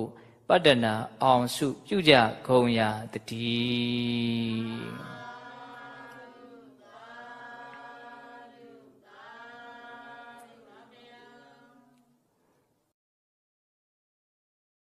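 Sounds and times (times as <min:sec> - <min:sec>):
person chanting long notes: 0:03.4 - 0:06.2.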